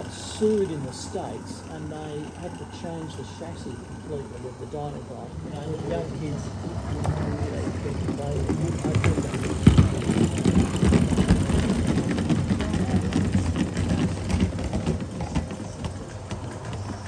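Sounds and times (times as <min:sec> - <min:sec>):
model steam locomotive running: 0:00.0 - 0:17.0.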